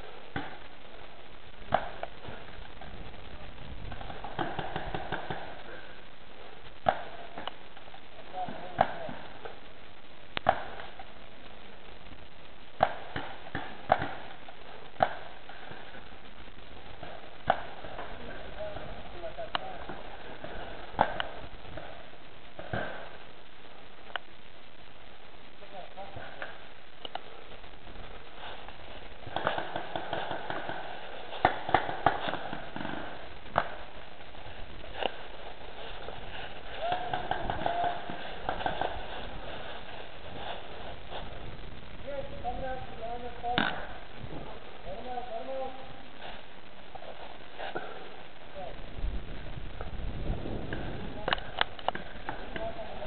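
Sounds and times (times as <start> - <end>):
paintball markers firing: 3.9 - 5.6, 29.2 - 33.9
paintball marker pops: 12.8 - 14.2.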